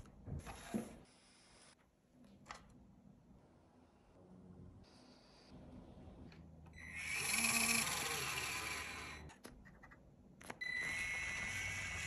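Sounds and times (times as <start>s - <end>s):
small electric motor whirring: 6.8s - 9.3s, 10.7s - 12.0s.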